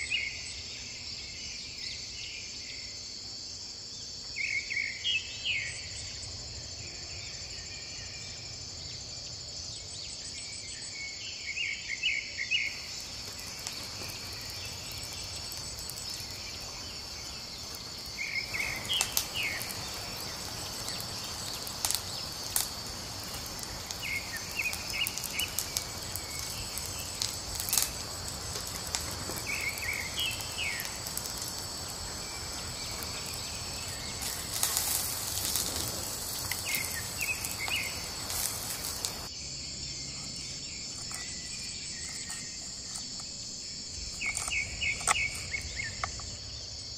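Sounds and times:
crickets chirping: 0.0s - 46.9s
wood fire crackling: 12.6s - 39.3s, 40.8s - 46.6s.

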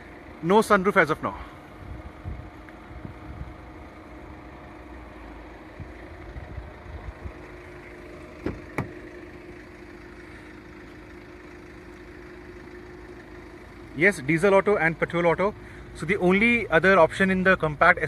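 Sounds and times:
engine hum: 0.0s - 18.0s
car door latch clicks: 8.4s - 9.0s.

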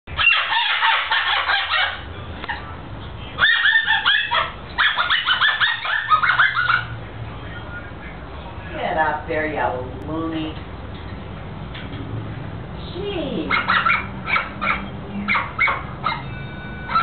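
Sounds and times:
cockatoo squeaking: 0.1s - 7.0s, 13.4s - 17.0s.

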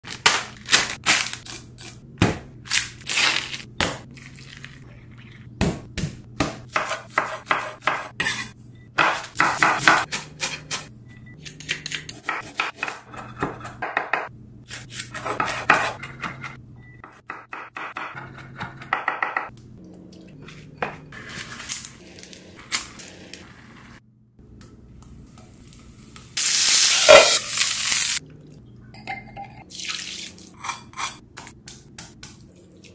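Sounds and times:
knife chopping on cutting board: 5.6s - 8.4s, 9.0s - 10.8s, 12.2s - 16.5s
food sizzling in a pan: 25.5s - 28.2s
dishes and utensils clinking: 28.9s - 29.6s, 30.5s - 31.3s.

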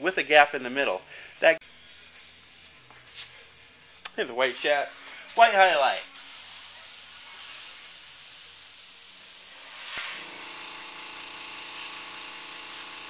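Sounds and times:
airbrush hissing: 5.6s - 10.1s.

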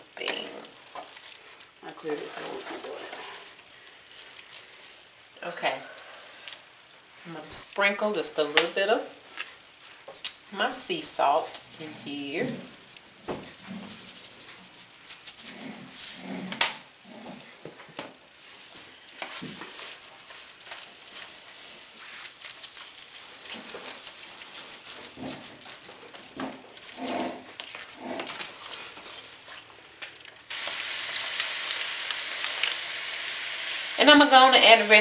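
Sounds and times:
spatula scraping and squelching: 0.2s - 5.1s, 9.3s - 16.6s, 18.4s - 30.5s.

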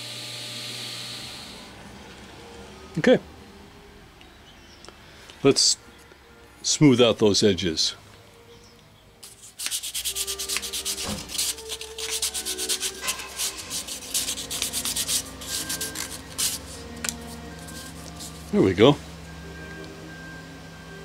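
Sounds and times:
sandpaper rasping on plastic: 9.2s - 16.8s.

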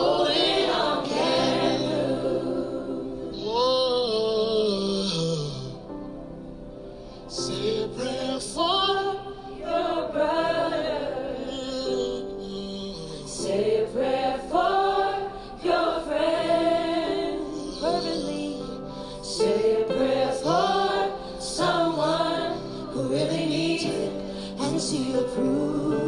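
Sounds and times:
gospel singing with choir: 0.0s - 5.9s, 7.1s - 26.0s
steady held accompaniment: 0.0s - 26.0s.

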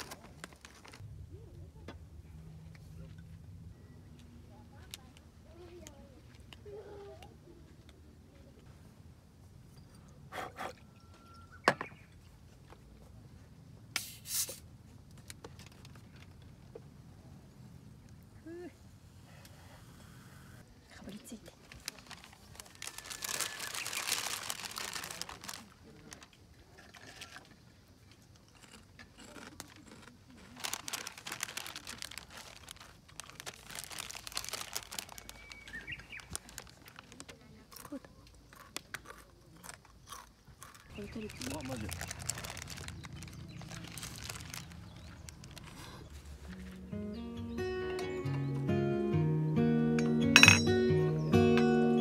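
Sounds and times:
parchment paper crinkling: 0.0s - 1.0s, 21.5s - 26.3s, 29.3s - 38.0s, 40.6s - 46.8s.

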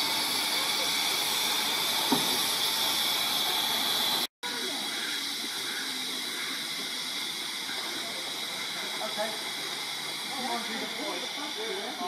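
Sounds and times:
steam hissing from locomotive: 0.0s - 12.0s.

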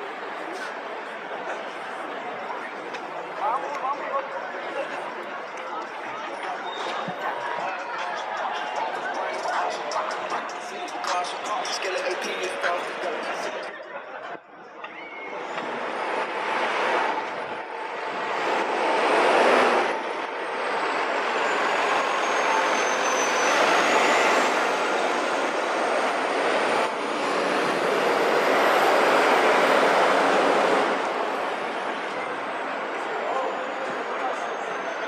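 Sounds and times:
road traffic rushing past: 15.3s - 35.0s.

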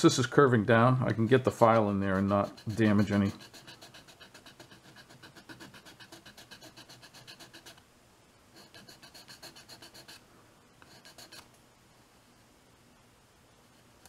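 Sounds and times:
hand file rasping on plastic: 1.7s - 7.8s, 8.6s - 10.2s, 10.8s - 11.4s.

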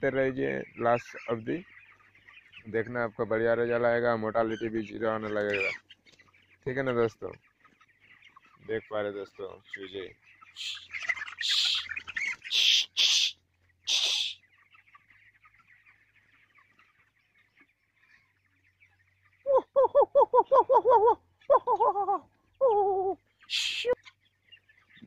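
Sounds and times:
chicks peeping: 0.0s - 25.0s
rapid wavering chicken calls: 0.0s - 25.0s
short hissing bursts: 12.5s - 14.4s.

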